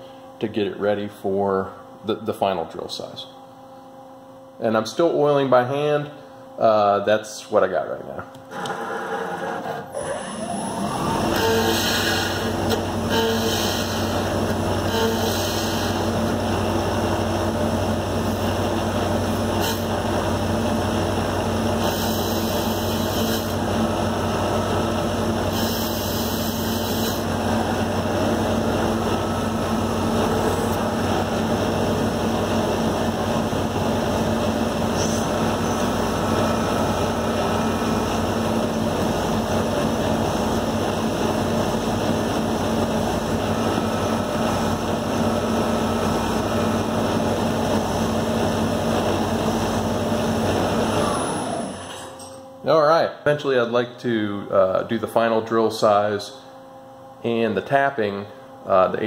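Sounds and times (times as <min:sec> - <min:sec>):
lathe humming: 0:08.5 - 0:51.8.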